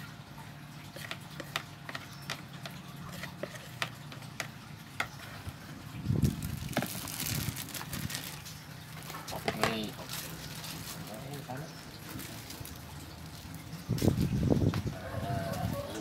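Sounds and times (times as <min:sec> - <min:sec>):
plastic bag crinkling: 0:06.1 - 0:14.7.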